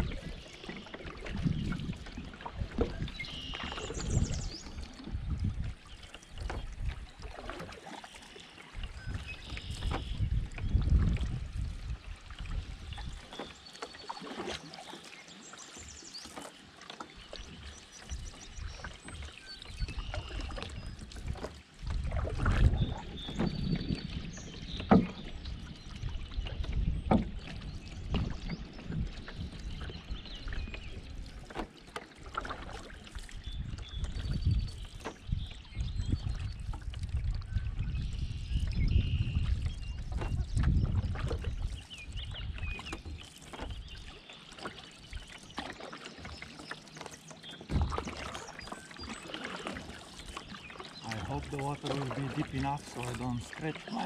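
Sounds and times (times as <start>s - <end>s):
paddle strokes swishing through water: 0.0s - 54.0s
songbirds singing: 2.8s - 7.3s, 12.8s - 21.5s, 22.6s - 31.6s, 32.9s - 36.8s, 37.4s - 54.0s.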